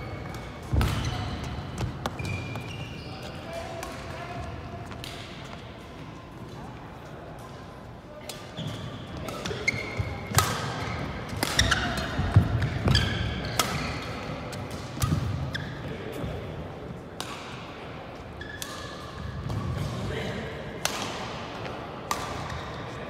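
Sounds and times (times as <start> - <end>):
shoes squeaking on floor: 0.0 - 3.5, 8.5 - 10.3, 10.9 - 14.1, 15.4 - 16.0, 18.4 - 18.6
rackets hitting shuttlecock: 0.2 - 2.8, 3.7 - 4.3, 8.3 - 15.5, 17.2 - 17.8, 20.8 - 22.8.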